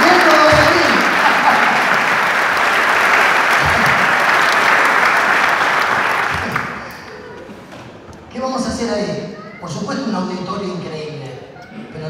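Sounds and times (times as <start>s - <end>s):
audience applauding: 0.0s - 7.3s
person clapping close by: 0.1s - 7.0s.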